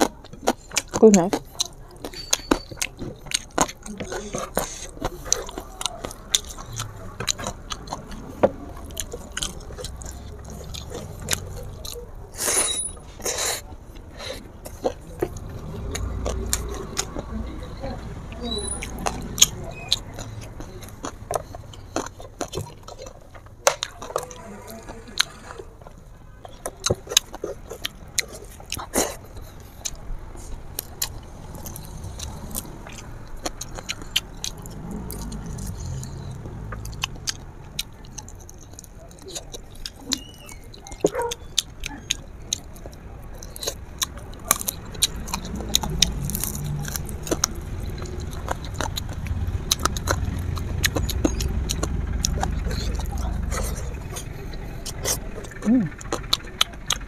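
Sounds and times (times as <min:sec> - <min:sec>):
person chewing and sucking: 0:00.0 - 0:57.0
wet smacks and lip noises: 0:26.5 - 0:57.0.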